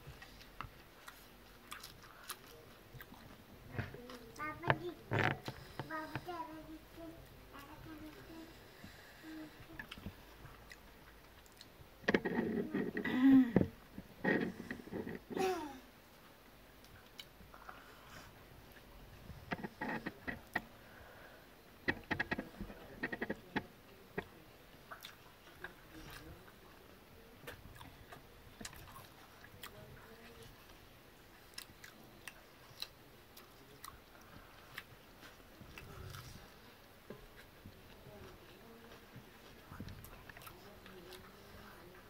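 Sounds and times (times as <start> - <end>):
wet chewing: 0.1 - 6.3, 8.8 - 13.0, 27.4 - 42.0.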